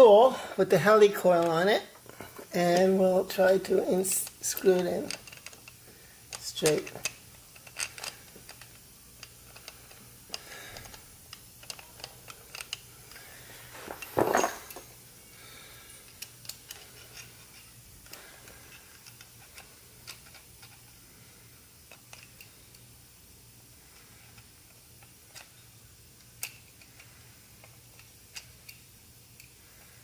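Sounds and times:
metal tool clatter: 0:13.8 - 0:14.9.

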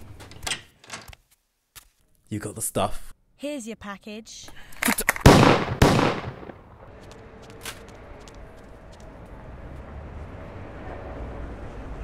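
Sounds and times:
gunshot echo: 0:05.2 - 0:06.6.

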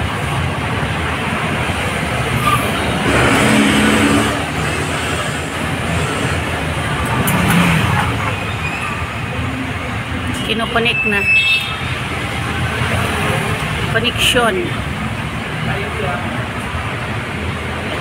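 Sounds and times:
road traffic passing: 0:00.0 - 0:18.0
vehicle engine passing: 0:01.6 - 0:10.2.

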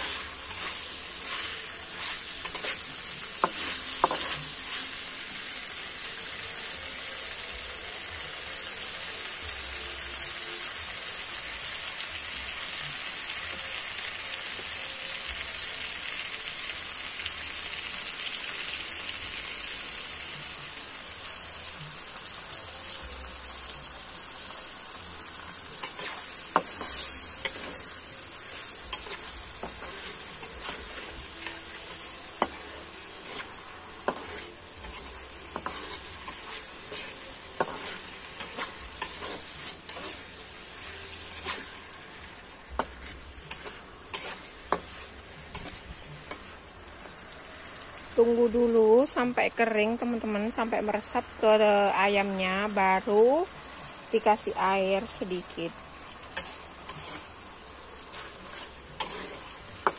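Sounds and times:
spatula scraping wok: 0:00.0 - 0:06.7, 0:24.4 - 0:48.1, 0:53.6 - 0:59.9
food sizzling in a wok: 0:00.0 - 0:59.9.

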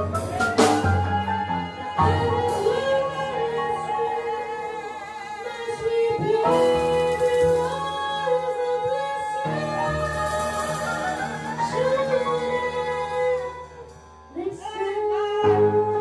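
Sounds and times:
upright bass: 0:00.0 - 0:04.2
drums: 0:00.0 - 0:16.0
piano: 0:00.0 - 0:16.0
woman singing jazz: 0:00.0 - 0:16.0.

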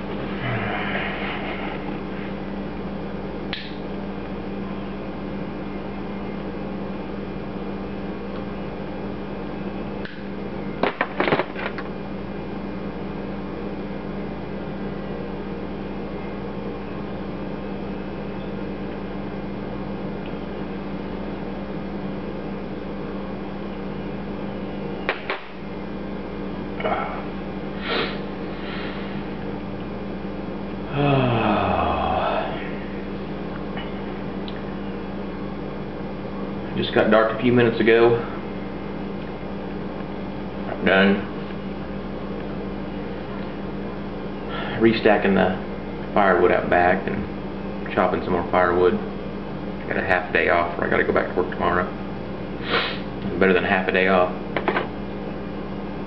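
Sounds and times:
electric hum: 0:00.0 - 0:56.0
low voice-like sound: 0:30.9 - 0:32.8.

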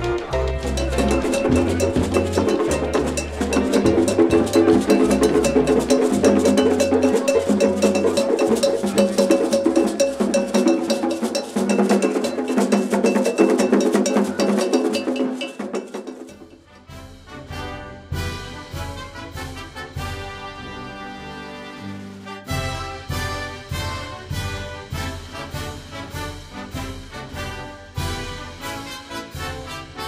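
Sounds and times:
bass line: 0:00.0 - 0:11.0
upbeat music: 0:00.0 - 0:16.5
struck percussion: 0:00.0 - 0:17.0.

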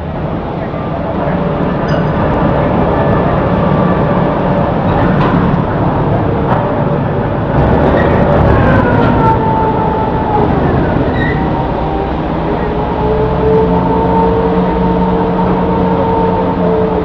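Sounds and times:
crane mechanical rumble: 0:00.0 - 0:17.0
thin squeals gliding down: 0:07.9 - 0:16.9.

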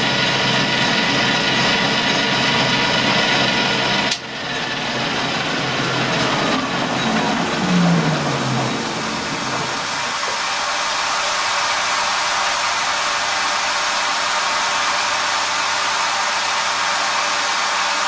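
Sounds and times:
fan-like rushing noise: 0:00.6 - 0:18.0.

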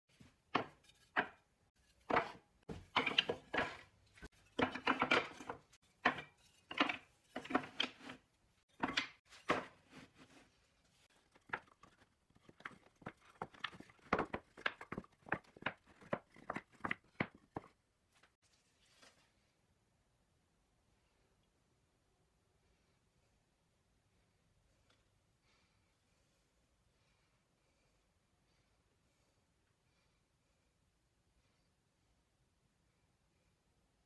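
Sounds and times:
wooden sticks clacking on board: 0:00.2 - 0:09.8
wood sliding on board: 0:00.5 - 0:08.2.

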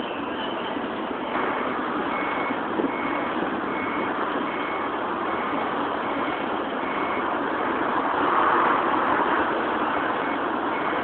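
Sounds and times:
outdoor background noise: 0:00.0 - 0:11.0
reversing alarm beeping: 0:01.4 - 0:07.3, 0:10.0 - 0:11.0.

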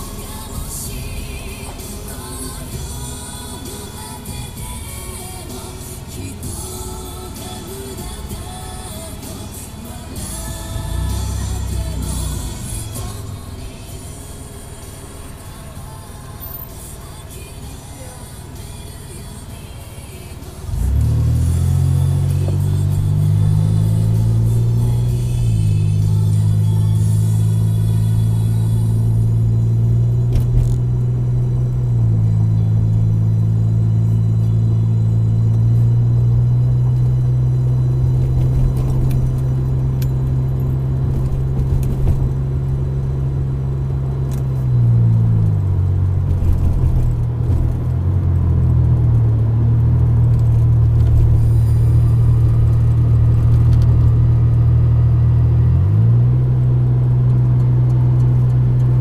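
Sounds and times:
car road rumble: 0:00.0 - 0:59.0
loud low drone: 0:45.3 - 0:59.0.

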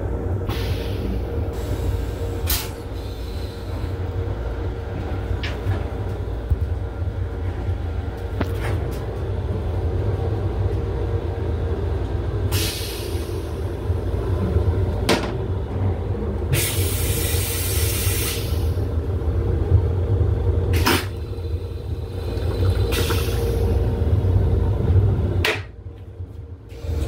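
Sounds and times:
train low rumble: 0:00.0 - 0:27.0
air hiss bursts: 0:16.5 - 0:18.8.

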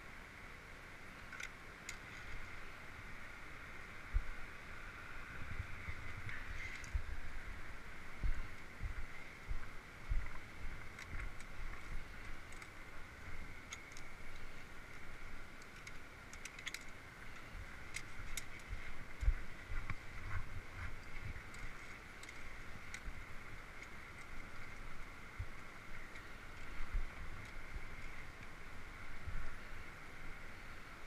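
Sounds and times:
carabiners clicking on cable: 0:10.2 - 0:20.0, 0:20.9 - 0:28.6.

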